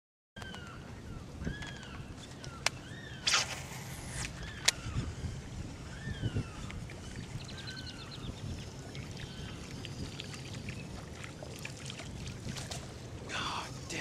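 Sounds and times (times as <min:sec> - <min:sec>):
marsh birds whistling: 0:00.4 - 0:05.2, 0:05.8 - 0:11.0
steady low hum: 0:03.0 - 0:07.5.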